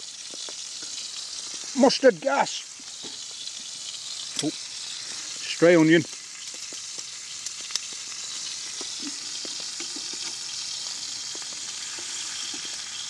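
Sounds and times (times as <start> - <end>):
steak sizzling in a frying pan: 0.0 - 13.0
small oil pops: 0.2 - 1.6, 6.0 - 10.6.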